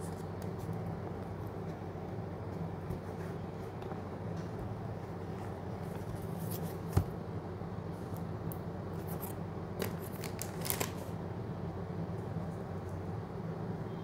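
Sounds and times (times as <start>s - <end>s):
cardboard box crinkling: 9.8s - 11.0s.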